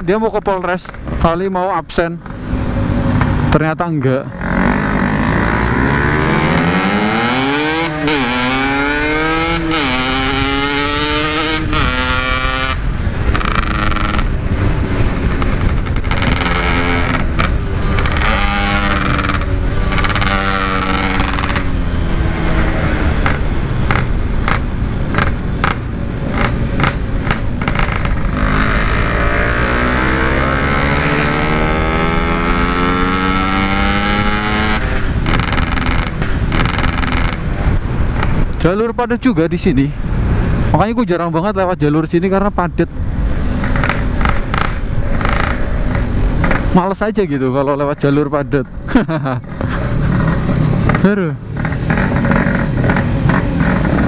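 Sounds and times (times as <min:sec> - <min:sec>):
two-stroke motorcycle engine revving: 0:04.3 - 0:38.6, 0:43.4 - 0:46.8, 0:48.5 - 0:54.0.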